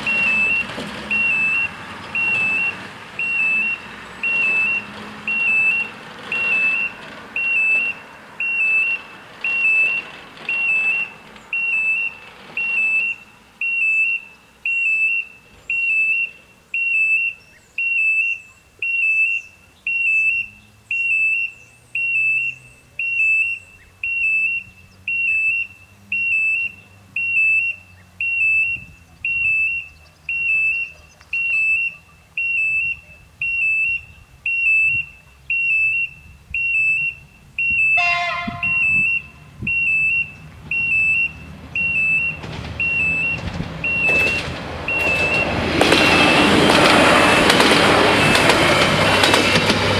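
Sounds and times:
car approaching: 0.0s - 49.9s
level crossing warning bell beeping: 0.0s - 49.9s
short horn: 37.9s - 39.5s.

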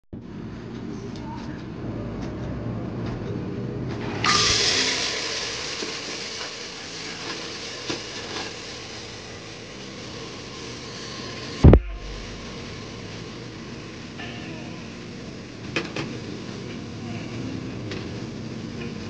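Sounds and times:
loud hiss: 4.2s - 19.0s.

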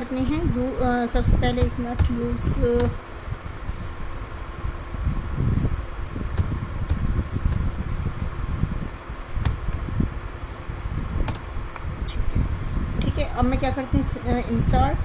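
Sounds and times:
low fan-like rumble: 0.0s - 15.0s
keyboard keys clicking: 6.4s - 8.1s.

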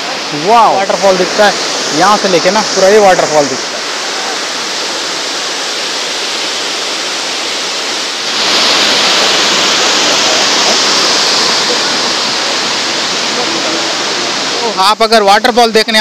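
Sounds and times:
waterfall rushing over rocks: 0.0s - 16.0s.

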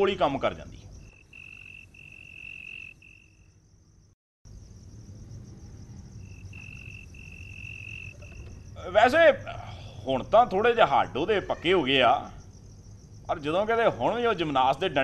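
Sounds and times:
crickets trilling: 0.0s - 15.0s
faint high insect buzz: 0.2s - 10.2s, 11.3s - 15.0s.

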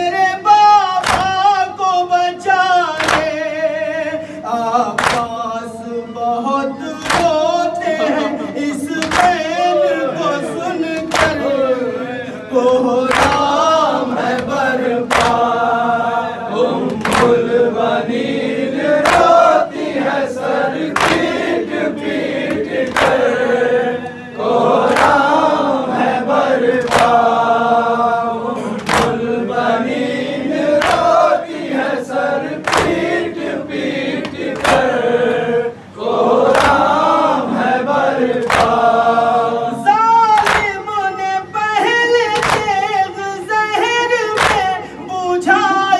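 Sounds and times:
man singing lament into microphone: 0.0s - 15.7s, 39.7s - 45.9s
men singing in chorus: 0.0s - 45.9s.

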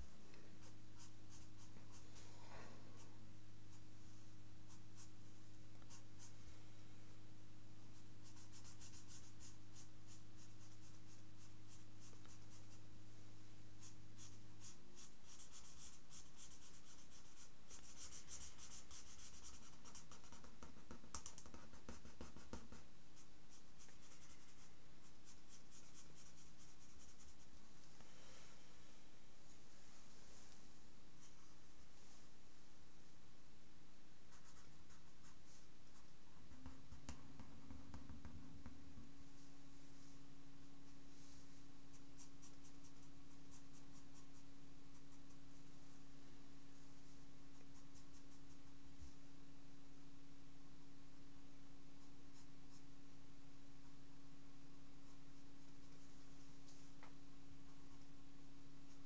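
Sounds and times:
marker drawing on paper: 0.6s - 3.8s, 4.6s - 5.2s, 5.8s - 6.5s, 7.9s - 12.8s, 13.7s - 27.6s.

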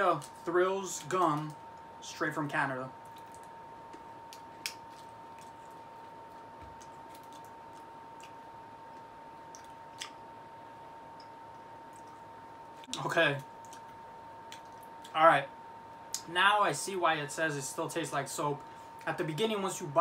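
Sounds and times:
faint high whine: 0.0s - 20.0s.

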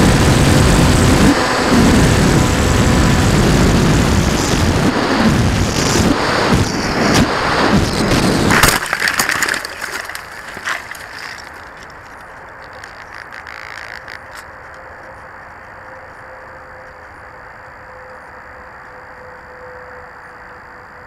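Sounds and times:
propellers rattling against twigs: 7.7s - 16.0s.

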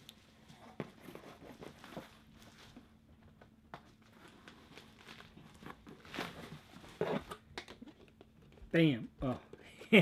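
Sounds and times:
rustling in cardboard box: 0.4s - 3.0s, 3.9s - 7.4s.

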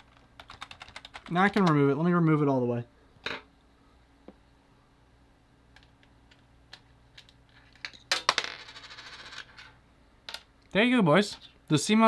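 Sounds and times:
computer humming: 0.0s - 7.8s.

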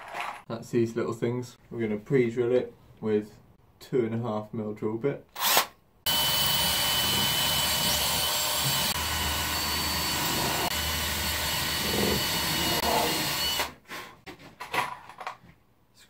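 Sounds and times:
cordless drill drilling into wood: 5.4s - 13.8s.

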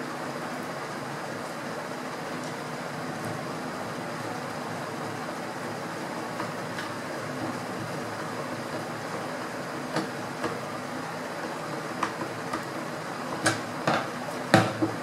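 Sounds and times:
steady background hum: 0.0s - 15.0s
knocks on hard tabletop: 13.4s - 15.0s.

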